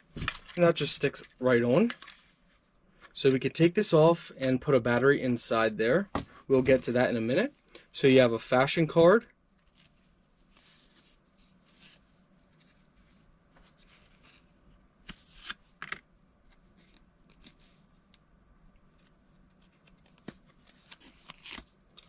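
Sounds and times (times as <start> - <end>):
plastic cards rustling: 0.0 - 2.4, 19.5 - 22.0.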